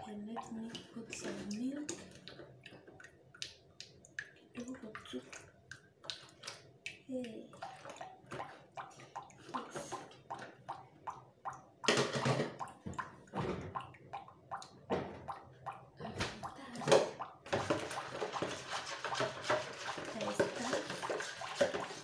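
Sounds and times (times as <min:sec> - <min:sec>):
kitchen items clattering: 0:11.9 - 0:12.6, 0:16.0 - 0:22.0
rustling and sloshing: 0:16.0 - 0:22.0.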